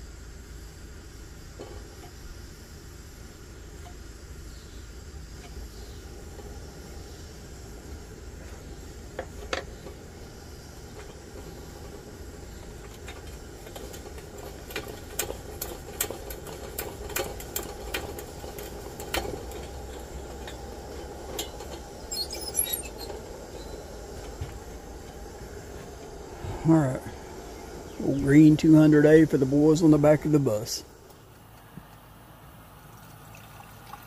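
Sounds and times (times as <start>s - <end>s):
pressurised stove burner hissing: 0.0s - 32.7s
light clicks and taps on lantern: 9.1s - 10.0s, 10.8s - 21.9s.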